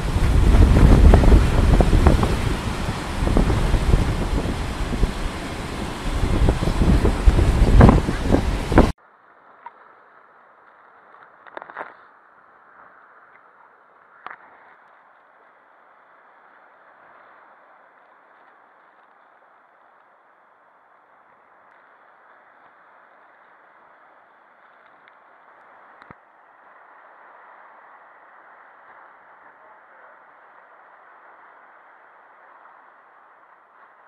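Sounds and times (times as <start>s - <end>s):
waves breaking: 0.0s - 9.0s
wind buffeting microphone: 0.0s - 9.0s
faint muffled surf hiss: 0.0s - 11.1s.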